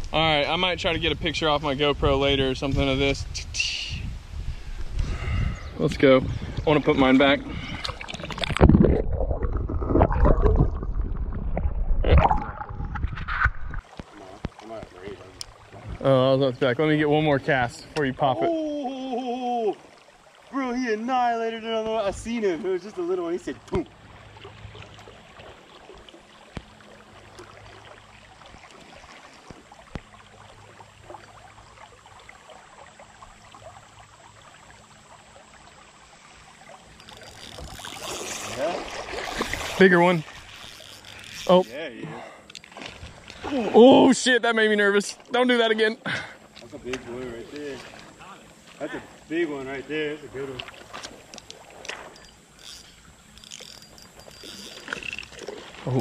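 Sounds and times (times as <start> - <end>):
muffled underwater river rumble: 0.0 - 18.9
water splashes: 5.8 - 56.0
river flowing over gravel: 19.3 - 42.0.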